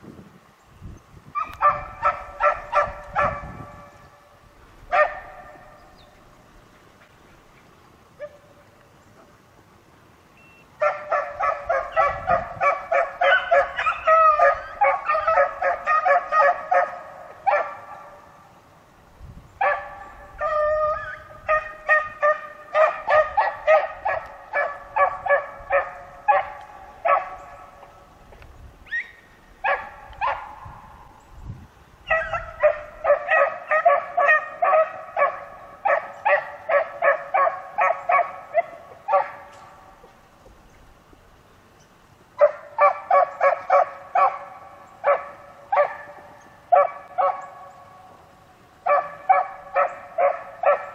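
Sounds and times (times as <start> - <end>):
dogs baying: 10.8 - 18.2, 48.8 - 50.9.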